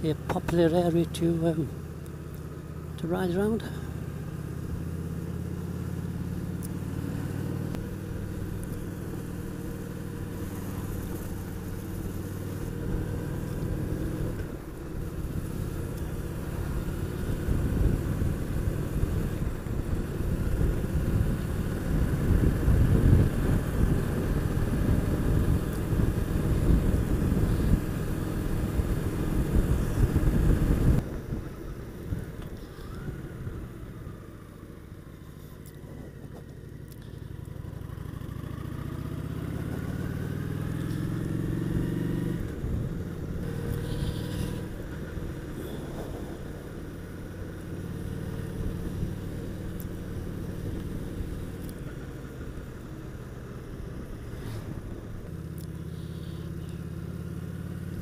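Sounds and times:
motorcycle engine running: 0:00.0 - 0:58.0
wind noise: 0:17.3 - 0:33.6, 0:41.8 - 0:47.5.

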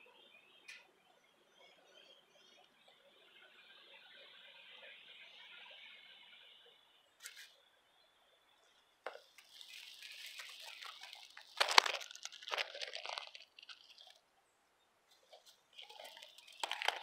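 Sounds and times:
dry hay rustling and crackling: 0:09.1 - 0:14.3, 0:15.1 - 0:17.0.

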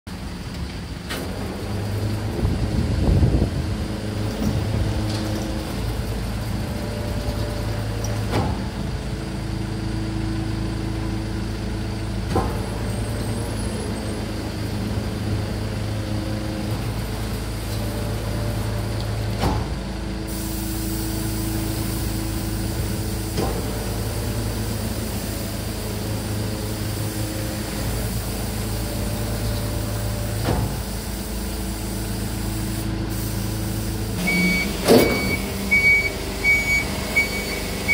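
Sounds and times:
garbage truck engine and hydraulics hum: 0:00.1 - 0:37.9
hydraulic whines: 0:16.0 - 0:37.9.

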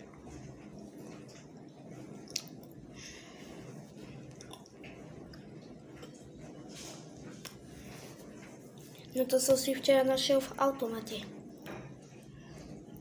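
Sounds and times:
wet chewing: 0:02.2 - 0:02.8, 0:04.0 - 0:06.2.

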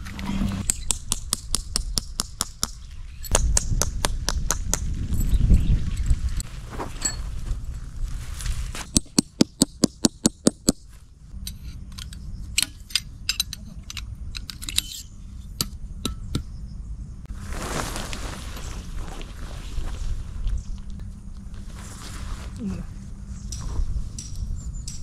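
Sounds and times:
tent peg being hammered: 0:00.6 - 0:04.8, 0:08.9 - 0:10.9, 0:15.6 - 0:16.5.

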